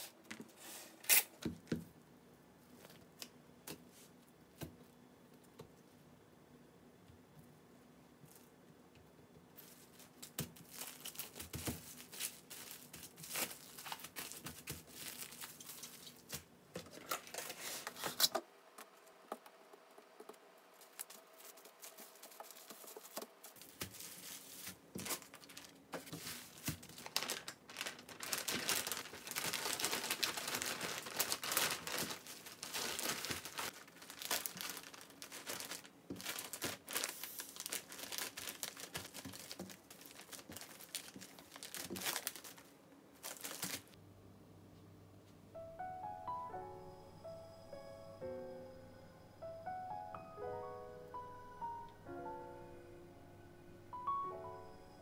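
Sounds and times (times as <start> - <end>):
plastic wrap crinkling: 9.6 - 18.4, 20.8 - 44.0.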